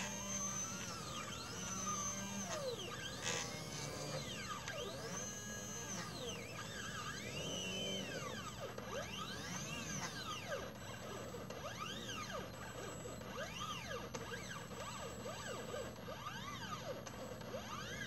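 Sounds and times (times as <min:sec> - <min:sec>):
stepper motors whining: 0:00.0 - 0:18.0.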